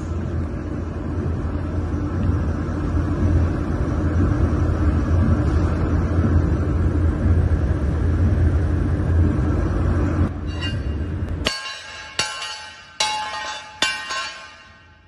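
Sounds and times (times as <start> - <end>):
low rumble: 0.0 - 12.3
hammer blows on ringing steel: 10.4 - 15.0.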